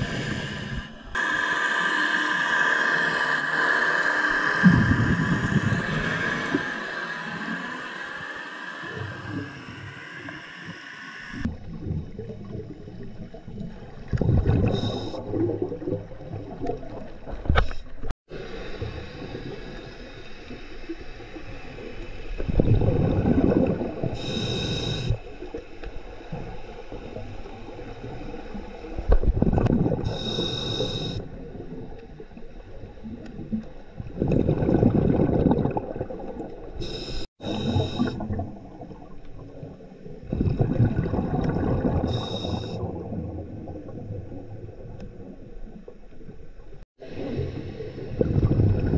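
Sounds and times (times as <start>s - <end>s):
underwater rumble: 2.5s - 48.9s
exhaled bubbles rushing: 4.3s - 6.7s, 11.4s - 17.4s, 22.4s - 24.3s, 26.3s - 30.2s, 32.9s - 36.8s, 37.5s - 45.7s, 47.0s - 48.9s
high regulator hiss: 24.2s - 25.2s, 30.1s - 31.2s, 36.8s - 38.1s.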